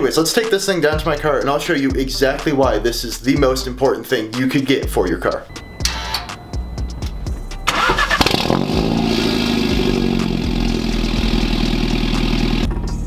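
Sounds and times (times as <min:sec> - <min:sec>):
car engine idling: 0:04.9 - 0:13.0
engine cranking: 0:07.6 - 0:12.9.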